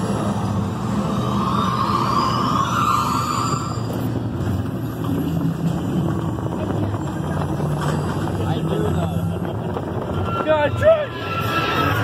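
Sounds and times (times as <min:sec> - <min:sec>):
rising whines: 0:00.0 - 0:06.5
ride vehicle rumbling: 0:00.0 - 0:12.0.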